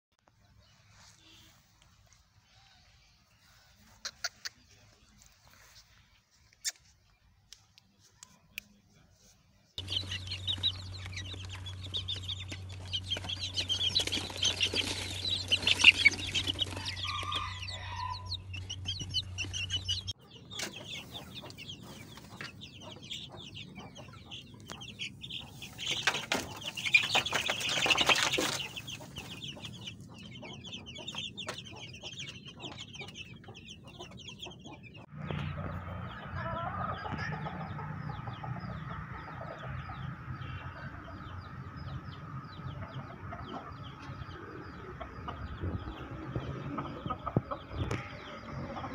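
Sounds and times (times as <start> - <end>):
chicks peeping: 0.3 - 8.8, 9.8 - 48.9
hen clucking: 2.4 - 5.8, 9.8 - 48.9
low hum: 9.8 - 17.0.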